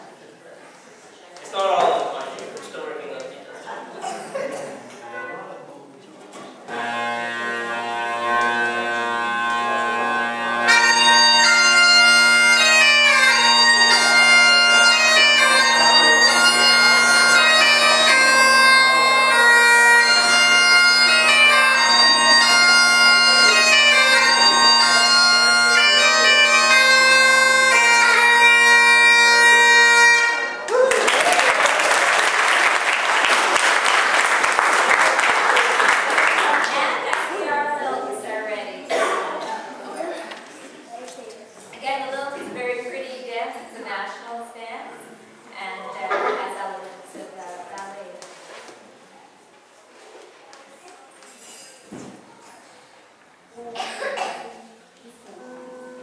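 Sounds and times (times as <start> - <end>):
bagpipe chanter tune: 6.7 - 30.7
bagpipe drones: 6.7 - 30.7
applause: 30.7 - 37.3.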